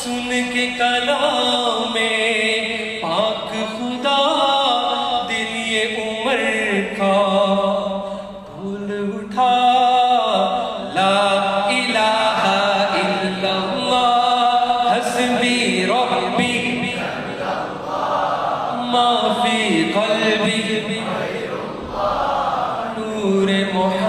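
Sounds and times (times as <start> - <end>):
man singing into a microphone: 0.0 - 17.4, 18.7 - 21.6, 22.8 - 24.0.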